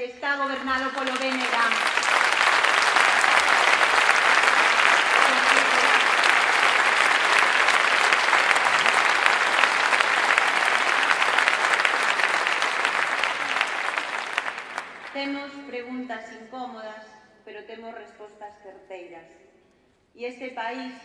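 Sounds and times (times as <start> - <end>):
audience applauding: 0.4 - 15.2.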